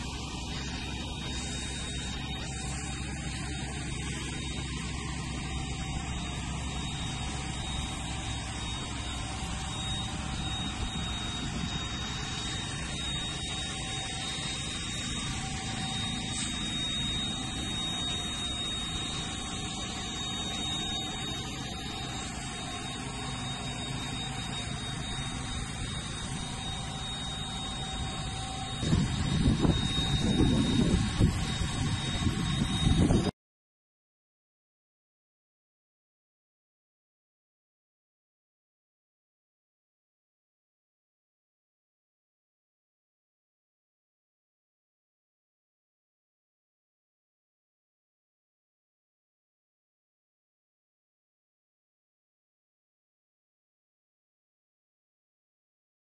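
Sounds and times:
high whine: 0.0 - 33.4.

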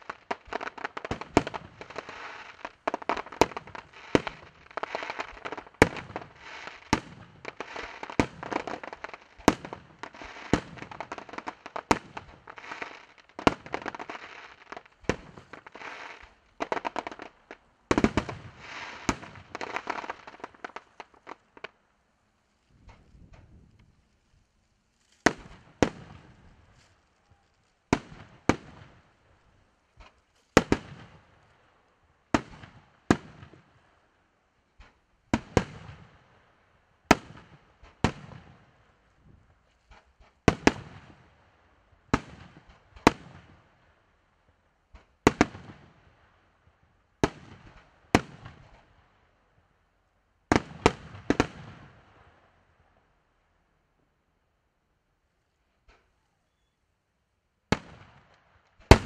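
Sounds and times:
firework shells bursting: 58.8 - 59.0.

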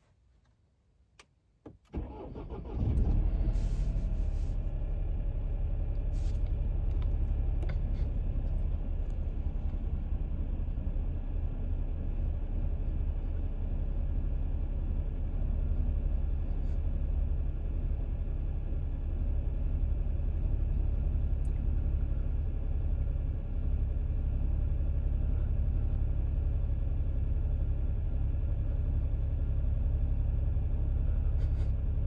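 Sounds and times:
engine cranking: 1.9 - 3.1
car engine idling: 2.0 - 32.0.

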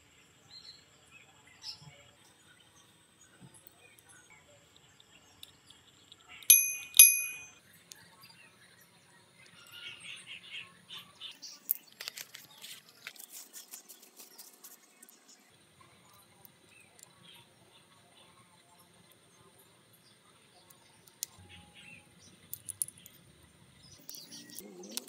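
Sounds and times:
handling noises: 6.5 - 7.6, 11.7 - 15.1
metal parts clinking: 6.5 - 7.6, 22.5 - 23.2.

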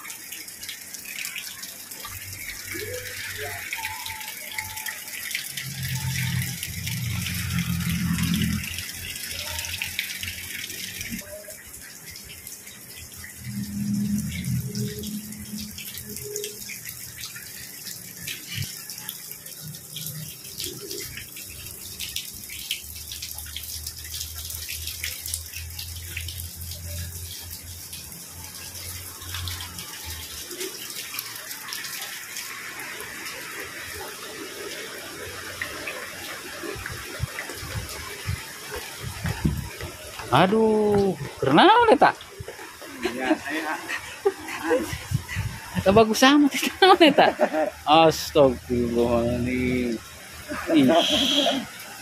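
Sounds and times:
heavy rain falling: 0.0 - 52.0.

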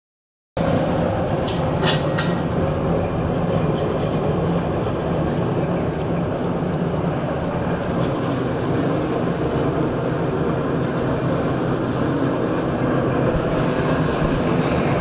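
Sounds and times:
machinery rattling rumble: 0.6 - 15.0
high metallic squeals: 1.4 - 2.6.

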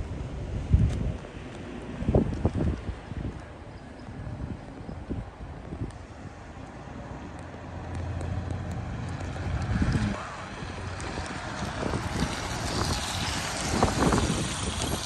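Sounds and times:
tyre and road hiss: 0.0 - 15.0.

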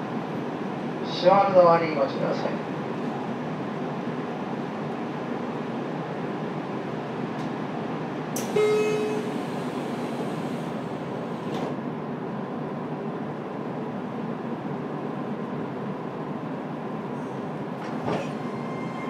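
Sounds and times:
stationary train hum: 0.0 - 19.0
short warning tone: 8.4 - 10.4
sliding doors shutting with a thump: 8.4 - 11.8, 17.8 - 18.8.

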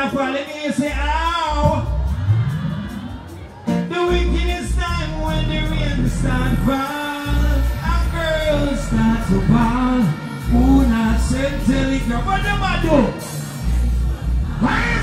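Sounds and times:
amplified backing music: 0.0 - 15.0
man singing into a microphone: 3.9 - 13.1.

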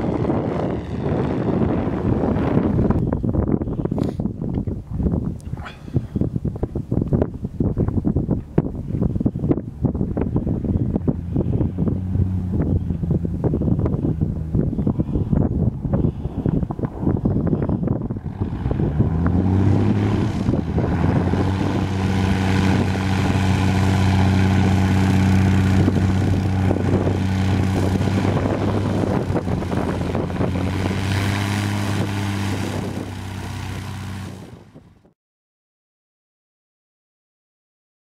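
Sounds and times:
propeller plane engine running: 0.0 - 35.2.

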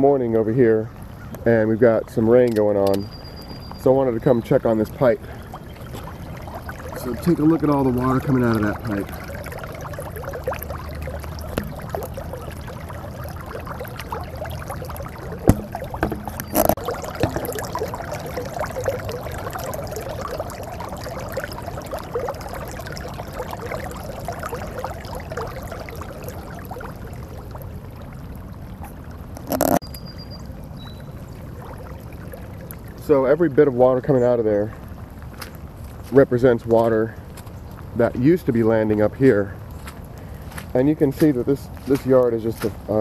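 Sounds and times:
water pouring into gutter: 0.0 - 43.0
sharp knocks: 15.5 - 16.7.

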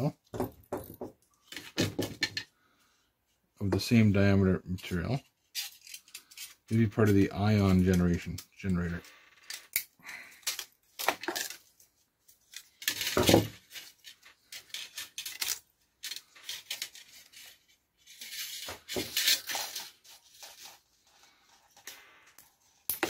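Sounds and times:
metal parts clinking and scraping: 5.3 - 23.0.

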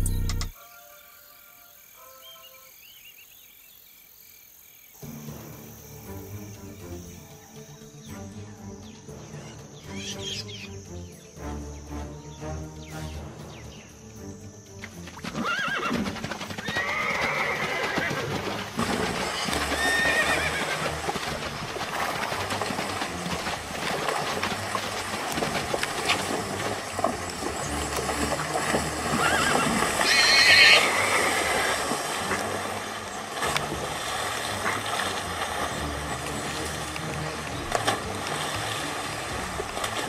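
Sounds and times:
herd galloping through water: 14.8 - 40.0
horses whinnying: 15.2 - 32.5.

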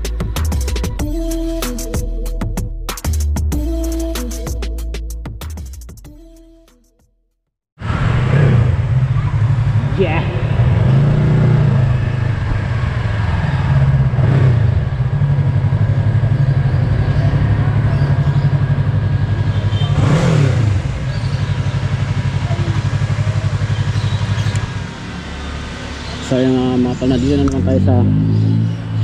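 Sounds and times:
motorcycle engine idling: 14.8 - 25.1.

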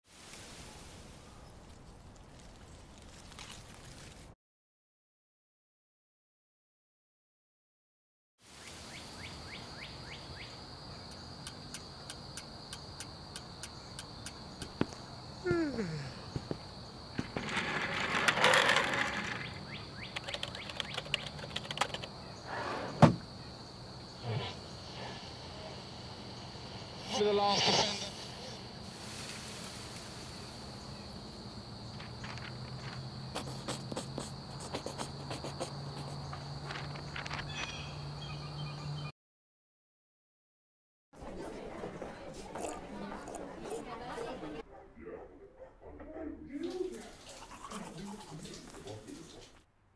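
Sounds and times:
crickets chirping: 8.5 - 39.1
bird chirping: 8.9 - 15.5, 19.4 - 22.6, 37.0 - 39.1
quick regular ticking: 11.1 - 14.8, 20.0 - 22.2.

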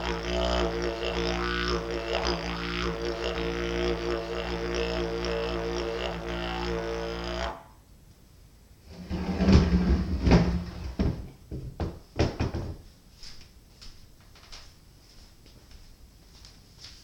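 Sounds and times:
wooden knocks and thuds: 9.1 - 12.9.

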